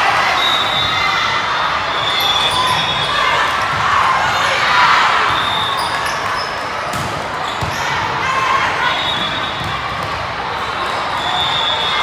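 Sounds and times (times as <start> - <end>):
hubbub of voices: 0.0 - 12.0
sneaker squeaks: 1.8 - 3.6, 5.0 - 12.0.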